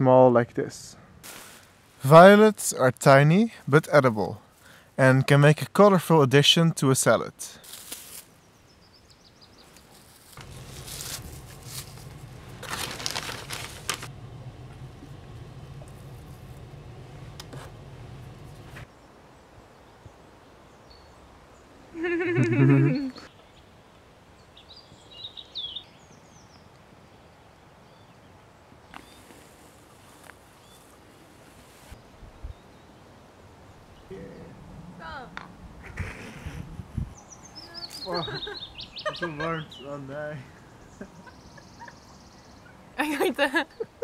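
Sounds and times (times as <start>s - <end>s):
outdoor background hiss: 0.0s - 44.0s
salad leaves rustling: 1.2s - 2.0s, 7.6s - 8.4s, 9.7s - 14.2s
low hum: 10.4s - 18.9s
high bird chirps: 37.2s - 39.9s.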